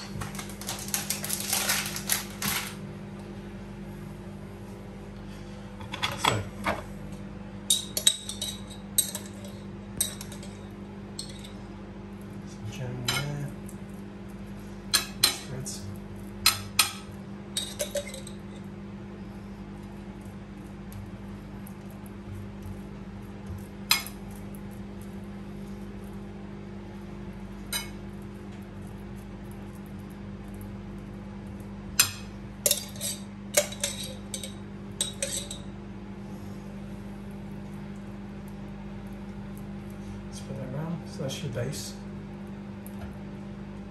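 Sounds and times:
steady low hum: 0.0s - 43.9s
crockery and cutlery clinking: 7.7s - 11.6s, 13.0s - 13.4s, 16.4s - 18.6s, 32.0s - 35.7s
glass and cutlery clinking: 17.6s - 18.4s, 32.0s - 35.7s.

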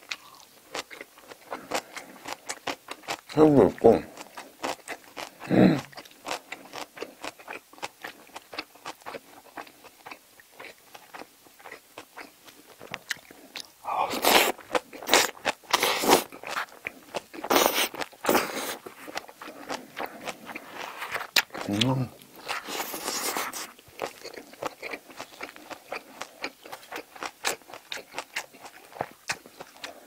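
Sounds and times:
wet chewing and biting: 0.0s - 3.4s, 4.0s - 30.0s
slurping mouthful: 17.5s - 23.8s.

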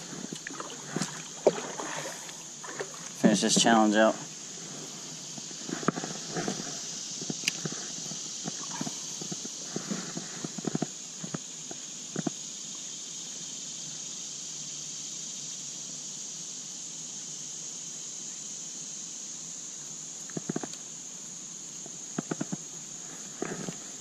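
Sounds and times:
high-pitched hiss: 0.0s - 24.0s.

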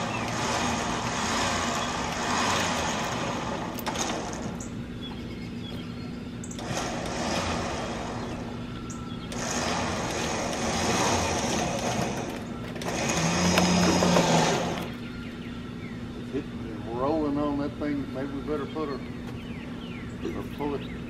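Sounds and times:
winch pulling: 0.0s - 4.8s, 6.4s - 15.0s
steady low hum: 0.0s - 21.0s.

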